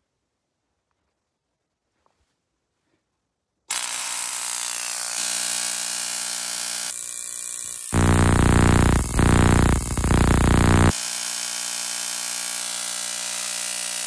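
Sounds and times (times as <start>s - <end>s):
tesla coil harsh electric buzz: 8.0s - 10.9s.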